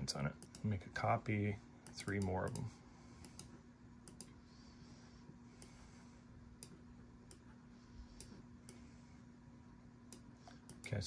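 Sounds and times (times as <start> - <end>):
faint steady hum: 0.0 - 11.0
computer mouse clicking: 1.8 - 4.4, 10.1 - 10.9.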